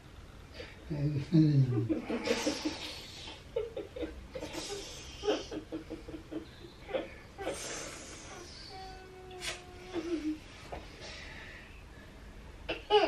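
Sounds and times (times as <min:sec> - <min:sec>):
steady hum-like tone: 0:00.0 - 0:13.0
soft laughter: 0:01.4 - 0:07.2.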